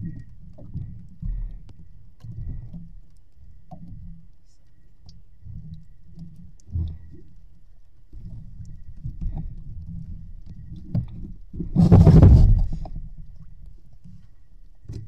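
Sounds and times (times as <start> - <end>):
light clicks of fishing hooks: 0.0 - 11.5
water lapping against boat hull: 0.0 - 15.0.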